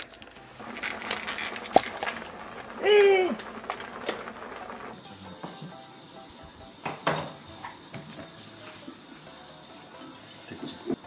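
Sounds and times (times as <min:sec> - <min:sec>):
water running in a sink: 0:00.4 - 0:11.0
dishes clinking: 0:06.8 - 0:08.3.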